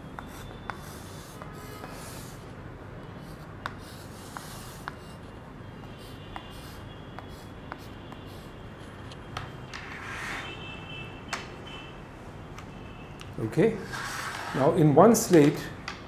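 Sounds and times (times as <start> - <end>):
chalk scratching on slate: 13.8 - 14.7.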